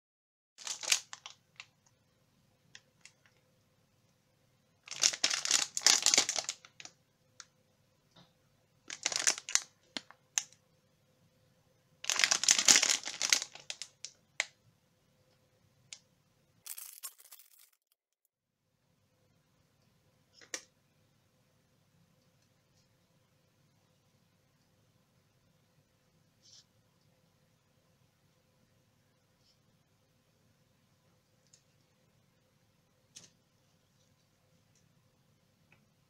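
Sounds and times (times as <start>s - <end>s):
plastic wrapper crinkling: 0.6s - 1.8s, 4.8s - 6.9s, 8.9s - 10.6s, 12.0s - 14.2s, 16.7s - 18.0s.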